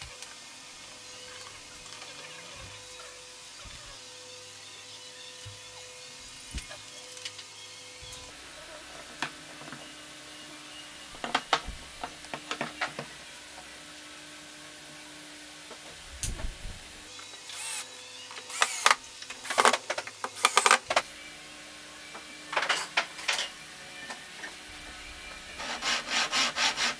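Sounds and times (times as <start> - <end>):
cordless drill driving screws: 17.4 - 20.9.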